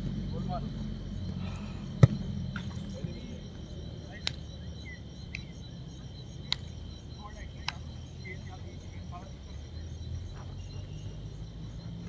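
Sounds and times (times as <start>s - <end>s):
crickets chirring: 0.0s - 12.0s
football being kicked: 2.0s - 2.8s.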